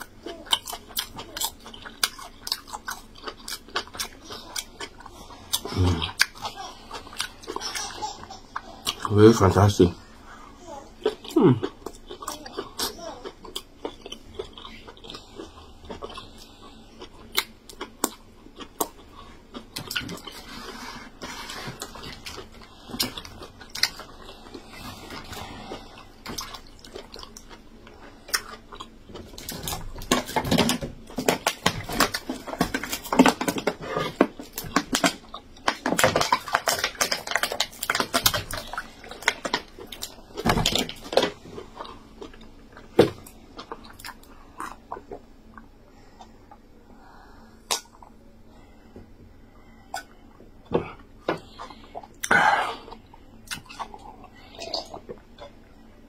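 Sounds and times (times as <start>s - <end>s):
person chewing: 0.0s - 56.0s
mouth clicks and smacks: 47.6s - 48.2s.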